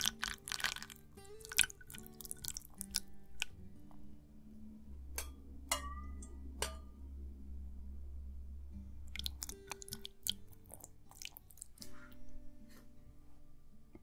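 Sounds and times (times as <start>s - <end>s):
wet clicks and drips of broth: 0.0s - 3.6s, 9.1s - 11.8s
soft background music: 0.0s - 14.0s.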